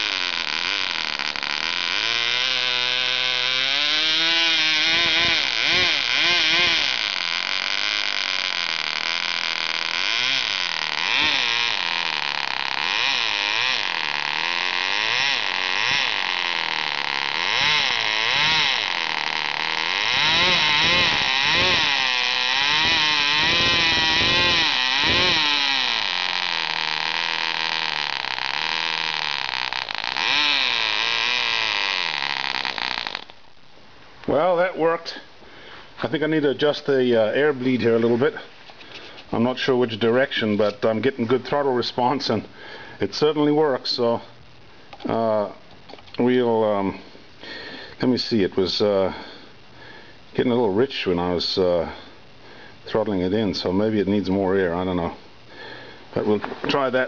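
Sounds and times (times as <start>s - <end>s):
model engine revving: 0.0s - 33.4s.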